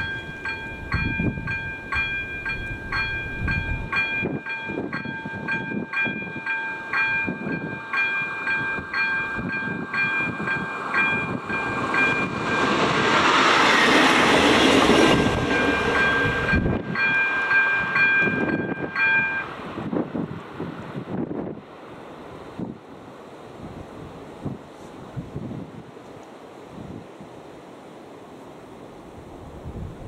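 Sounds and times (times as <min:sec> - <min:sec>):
level crossing warning bell: 0:00.0 - 0:12.9, 0:14.6 - 0:19.7
diesel railcar passing: 0:00.0 - 0:26.6.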